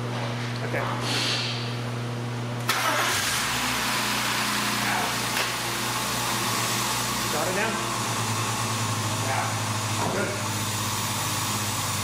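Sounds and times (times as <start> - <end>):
car engine starting and idling: 2.6 - 12.0.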